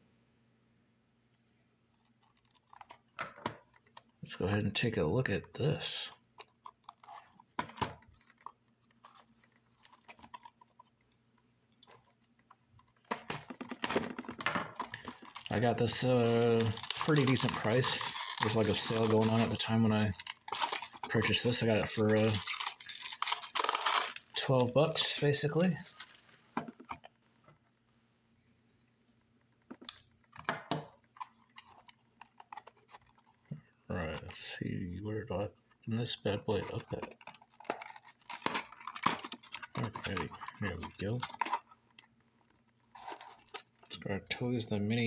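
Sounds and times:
faint low hum: 0:00.0 - 0:45.0
plastic wrap crinkling: 0:02.4 - 0:27.5, 0:35.7 - 0:44.0.

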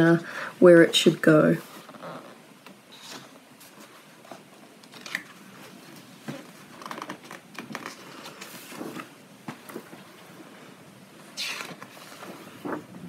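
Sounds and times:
page turning: 0:01.6 - 0:10.0, 0:11.3 - 0:13.0
paper rustling: 0:02.9 - 0:10.1, 0:11.3 - 0:13.0.

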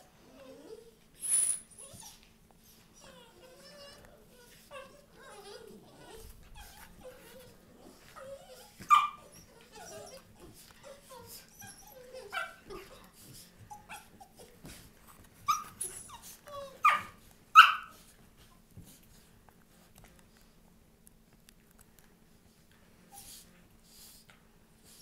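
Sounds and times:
puppies yipping and whining: 0:00.1 - 0:18.1.

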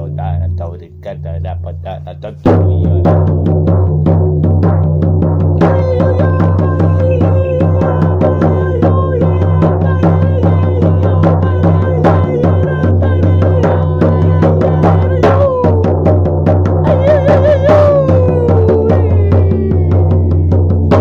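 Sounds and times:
fast drumbeat: 0:00.0 - 0:21.0
wavering higher tone: 0:05.6 - 0:15.4.

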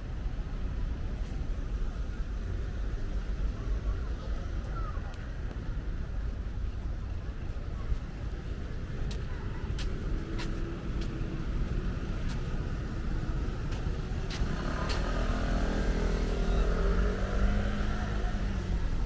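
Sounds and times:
low outdoor background noise: 0:00.0 - 0:19.0
vehicle engine passing by: 0:14.3 - 0:19.0.

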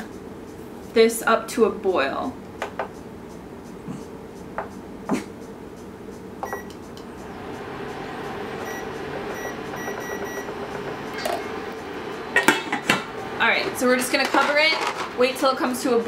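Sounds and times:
cooktop fan humming: 0:00.0 - 0:16.0
short electronic beeps: 0:06.4 - 0:06.7, 0:08.6 - 0:10.5.

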